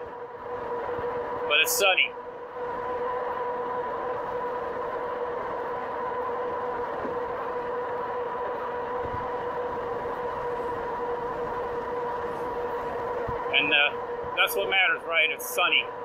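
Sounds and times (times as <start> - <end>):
electric motor whine: 0.0 - 16.0
wind noise: 8.9 - 14.6.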